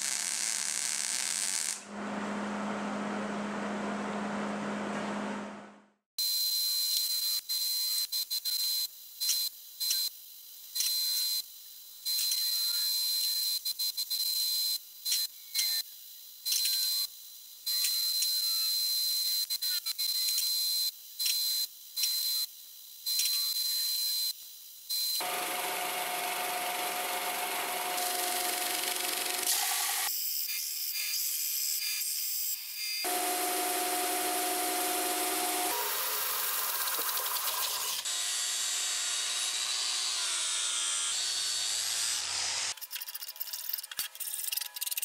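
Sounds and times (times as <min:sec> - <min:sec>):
welder arc hissing and crackling: 0:00.0 - 0:01.8, 0:25.2 - 0:30.1, 0:33.1 - 0:38.1
power sander grinding steel: 0:25.2 - 0:30.1, 0:33.1 - 0:42.7.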